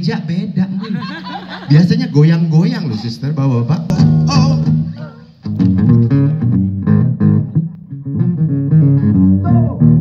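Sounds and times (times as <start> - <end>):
low bass line: 3.7 - 10.0
acoustic guitars strumming: 3.9 - 9.4.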